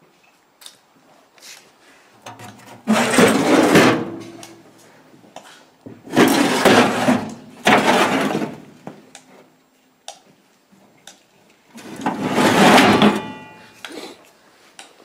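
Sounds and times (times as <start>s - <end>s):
metal drawer scraping open: 2.3s - 4.4s, 6.1s - 8.6s, 11.8s - 13.6s
pans rattling in drawer: 2.8s - 4.3s, 6.1s - 8.5s, 11.8s - 13.6s.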